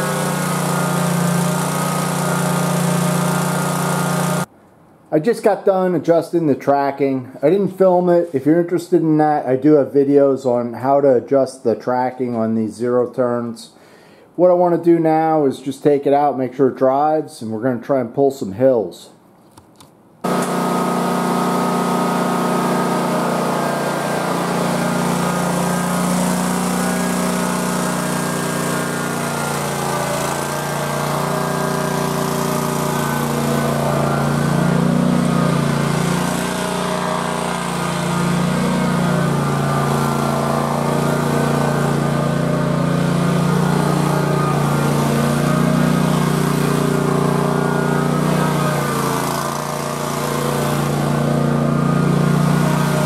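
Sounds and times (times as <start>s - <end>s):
lawn mower engine running: 0.0s - 4.5s, 20.2s - 53.0s.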